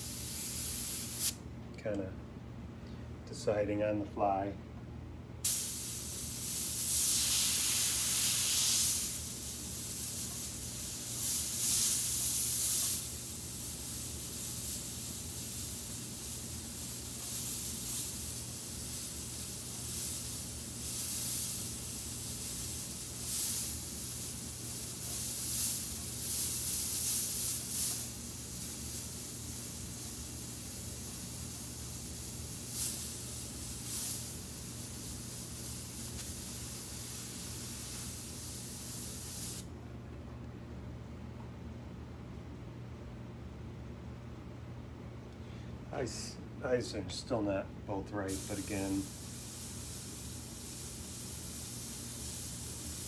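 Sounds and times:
airbrush spraying hiss: 0:00.0 - 0:01.4, 0:05.4 - 0:39.7, 0:48.2 - 0:53.0
steady low hum: 0:00.0 - 0:53.0.

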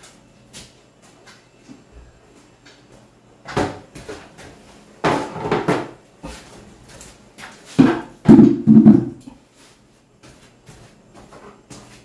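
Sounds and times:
plastic basins clattering on tiles: 0:05.0 - 0:06.0, 0:07.8 - 0:09.4.

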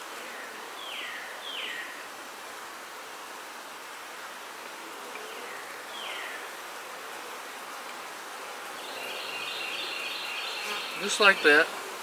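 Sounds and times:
bees buzzing: 0:04.8 - 0:12.0
close bee buzz: 0:08.8 - 0:12.0.

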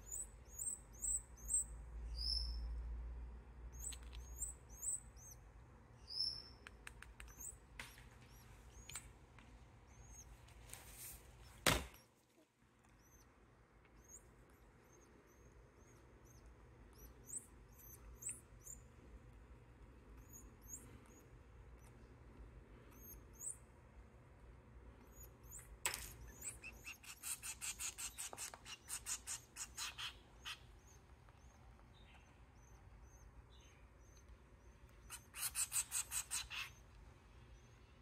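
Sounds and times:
finch chicks begging calls: 0:03.7 - 0:05.4, 0:14.0 - 0:18.8, 0:25.1 - 0:36.9.

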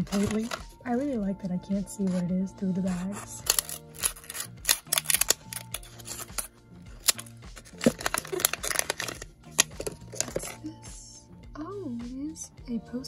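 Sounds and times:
plastic wrapper crinkling: 0:00.0 - 0:01.1, 0:03.4 - 0:10.6
scissors snipping plastic: 0:00.0 - 0:01.1, 0:01.8 - 0:02.2, 0:02.9 - 0:10.6.

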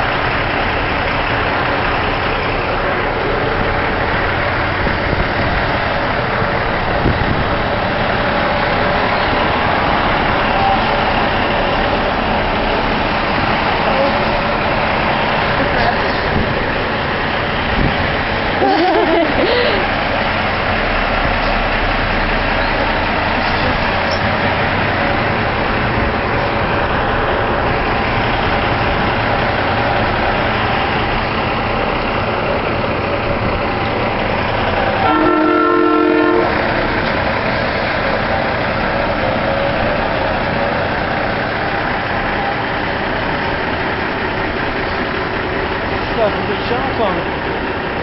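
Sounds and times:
trucks pulling away: 0:00.0 - 0:48.0
truck horn blast: 0:34.8 - 0:36.7.

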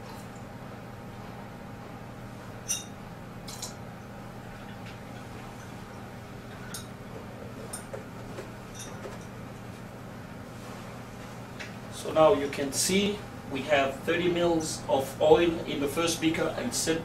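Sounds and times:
steady low hum: 0:00.0 - 0:17.0
glass clinking: 0:02.7 - 0:03.8, 0:04.6 - 0:07.0, 0:08.7 - 0:09.4.

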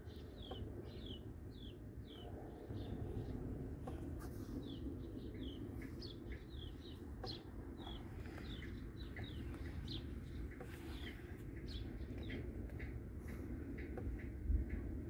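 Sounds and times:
steady low rumble: 0:00.0 - 0:15.0
small bird chirping: 0:04.6 - 0:12.5.

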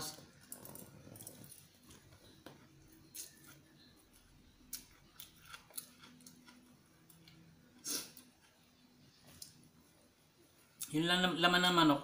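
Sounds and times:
soft chewing: 0:00.0 - 0:09.6.

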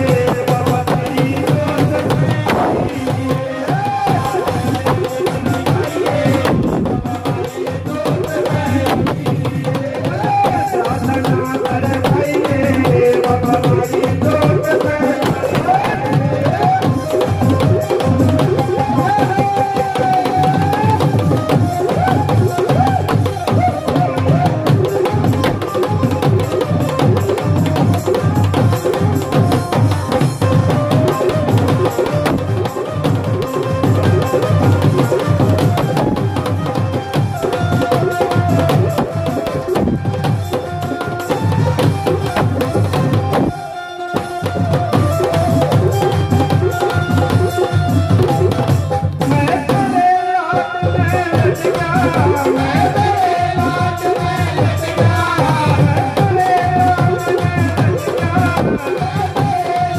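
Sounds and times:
hand drum beating fast rhythm: 0:00.0 - 0:59.9
person singing: 0:00.0 - 0:59.9.

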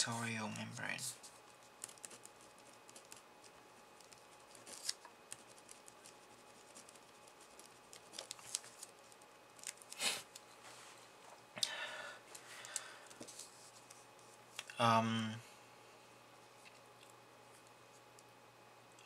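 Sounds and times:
paper rustling: 0:00.2 - 0:11.0
pen scratching on paper: 0:01.2 - 0:08.1.

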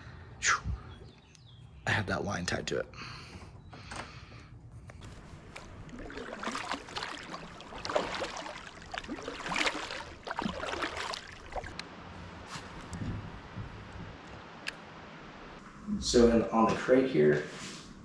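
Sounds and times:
paddle splashing in water: 0:05.1 - 0:11.8
water trickling off paddle: 0:05.1 - 0:11.8.

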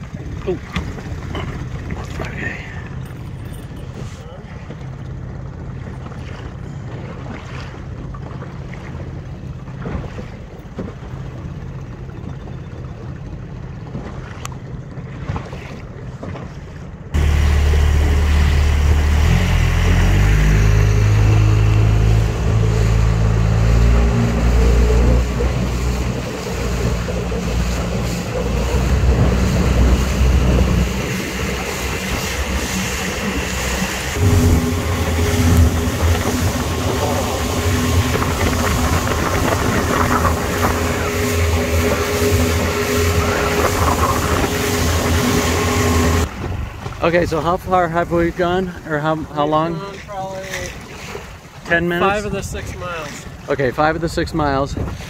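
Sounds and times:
water rushing and splashing: 0:00.0 - 0:12.0, 0:13.6 - 0:55.0
outboard motor running: 0:00.0 - 0:55.0
wind on microphone: 0:21.3 - 0:46.9, 0:54.5 - 0:55.0.

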